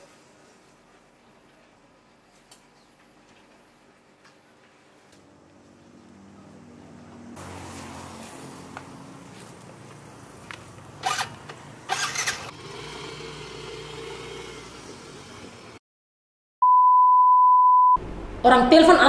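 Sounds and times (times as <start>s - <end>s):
motor scooter engine running: 7.4s - 15.8s.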